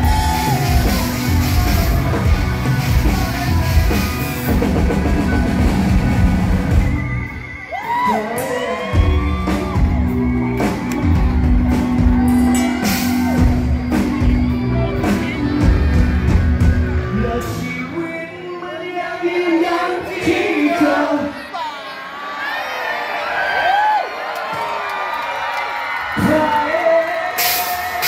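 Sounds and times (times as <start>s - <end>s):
electric guitars: 0.0s - 17.8s
bass guitar: 0.0s - 18.0s
drums: 0.0s - 18.0s, 26.0s - 28.0s.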